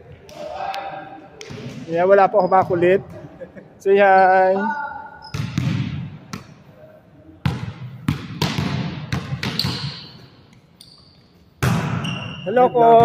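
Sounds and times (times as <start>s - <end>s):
volleyball smacks with hall echo: 5.2s - 6.6s, 7.4s - 10.2s, 11.6s - 13.0s.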